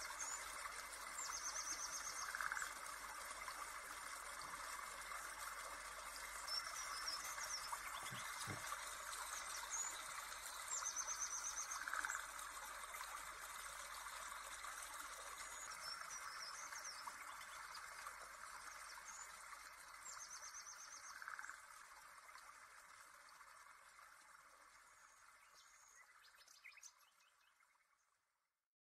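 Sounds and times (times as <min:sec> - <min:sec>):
rushing hiss of stream: 0:00.0 - 0:15.3
birds chirping and trilling: 0:06.5 - 0:08.6.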